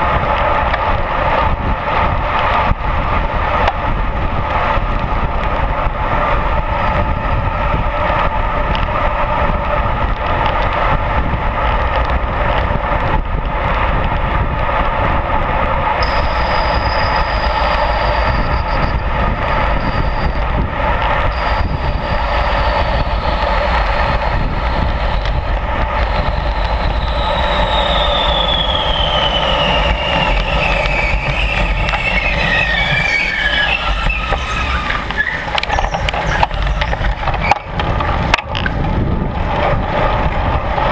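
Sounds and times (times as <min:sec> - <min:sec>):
bicycle tyre road noise: 0:00.0 - 0:40.9
wind noise: 0:00.0 - 0:40.9
thin whine falling in pitch: 0:16.0 - 0:37.7.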